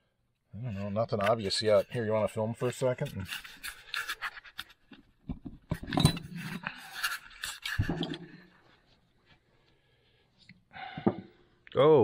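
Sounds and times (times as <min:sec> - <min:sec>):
metal clinks and scrapes: 0:00.6 - 0:04.9, 0:05.6 - 0:08.4.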